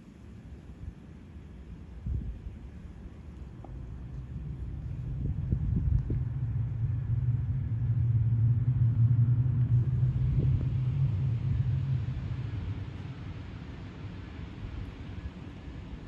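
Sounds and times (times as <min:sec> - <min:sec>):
passing vehicle engine rumble: 0:03.7 - 0:16.0.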